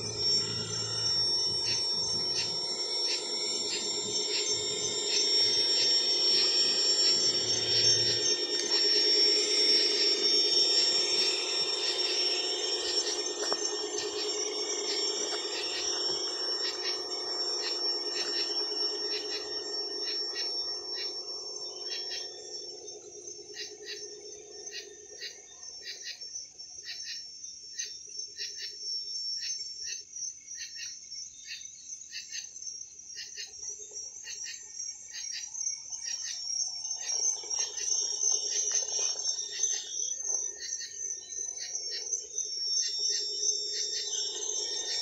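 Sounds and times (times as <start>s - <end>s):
electric motor whining: 0.0s - 24.7s, 36.8s - 45.0s
crickets chirping: 0.0s - 45.0s.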